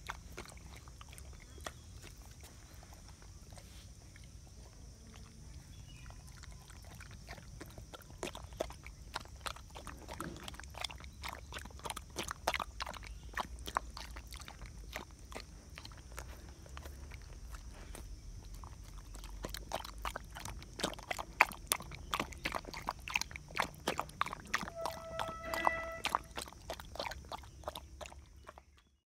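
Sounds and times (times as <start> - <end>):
dog lapping and chewing: 0.0 - 29.0.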